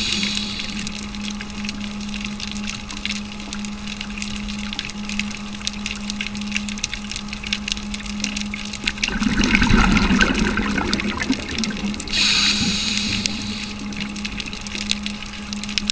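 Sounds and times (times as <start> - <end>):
regulator inhale hiss: 0.0 - 1.0, 12.1 - 14.1
exhaled bubbles rumbling: 0.0 - 15.9
steady low hum: 0.0 - 15.9.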